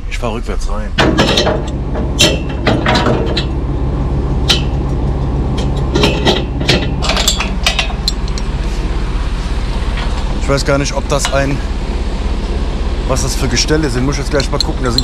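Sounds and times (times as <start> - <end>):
engine and hydraulic hum: 0.0 - 15.0
sharp metal clanks: 1.0 - 3.7, 4.4 - 8.4.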